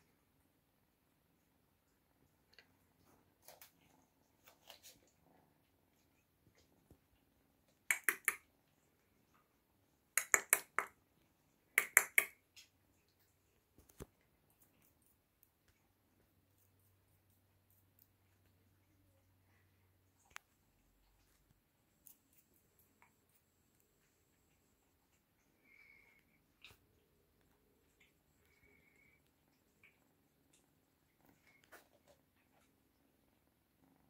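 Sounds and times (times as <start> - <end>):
sharp clicks: 7.9 - 8.4, 10.2 - 10.9, 11.8 - 12.4.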